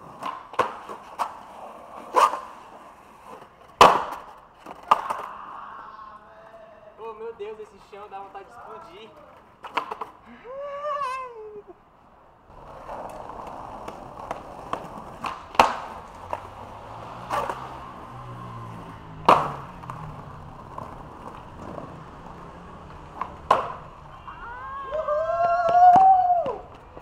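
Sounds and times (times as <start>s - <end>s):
skateboard popping and landing: 0.0s - 5.4s, 9.1s - 10.2s, 12.5s - 27.0s
skateboard wheels rolling: 0.0s - 27.0s
person shouting: 5.2s - 6.9s, 10.4s - 11.8s, 24.0s - 26.6s.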